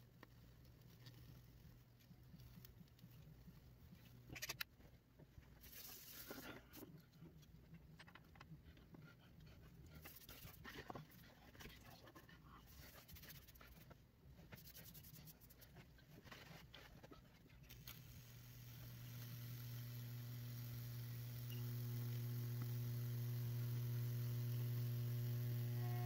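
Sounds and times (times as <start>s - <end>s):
electrical hum: 17.6s - 26.0s.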